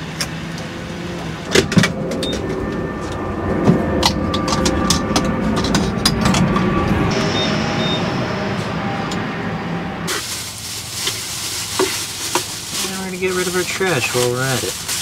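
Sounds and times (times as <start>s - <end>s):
vehicle rumble: 0.0s - 15.0s
short high beeps: 7.3s - 8.1s.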